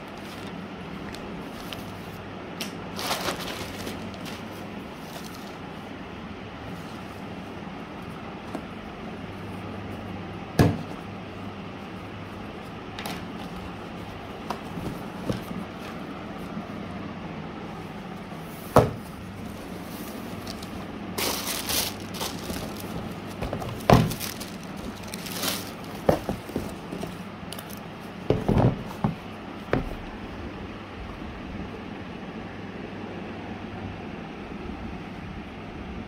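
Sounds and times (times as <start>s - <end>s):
low background hum: 0.0s - 36.0s
tissue paper rustling: 2.9s - 5.8s, 19.4s - 27.8s
knocks and taps on cardboard box: 14.5s - 15.6s, 26.0s - 27.1s, 28.3s - 30.0s.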